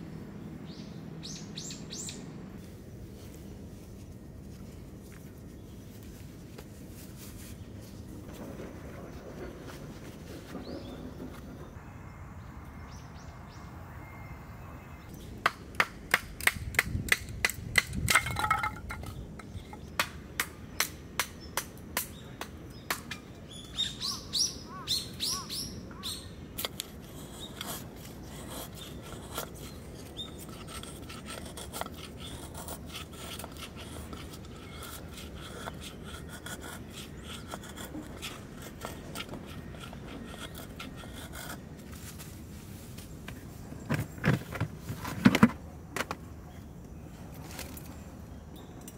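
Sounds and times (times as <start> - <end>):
birds chirping: 0.2 - 2.6, 10.5 - 15.4, 18.3 - 41.6
wooden clicks and knocks: 16.1 - 19.5
knife shaving wood: 26.6 - 42.3.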